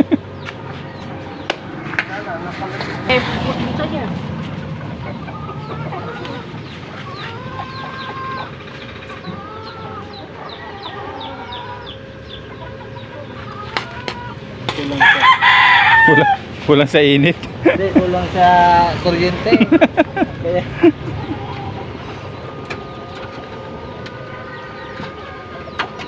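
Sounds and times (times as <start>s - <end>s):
chickens clucking: 0.0s - 26.0s
rooster crowing: 5.3s - 8.6s, 9.2s - 12.2s, 13.2s - 16.5s, 21.2s - 25.8s.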